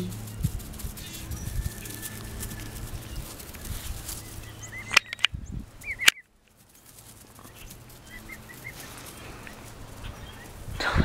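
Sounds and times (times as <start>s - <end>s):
emu chicks peeping: 0.0s - 11.0s
sharp clicks: 4.8s - 6.3s.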